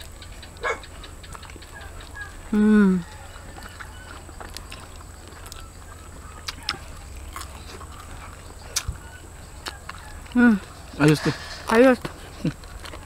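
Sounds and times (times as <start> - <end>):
faint steady hum: 0.0 - 13.0
person chewing: 0.0 - 13.0
crisp mouth clicks: 6.4 - 6.8, 8.7 - 9.0.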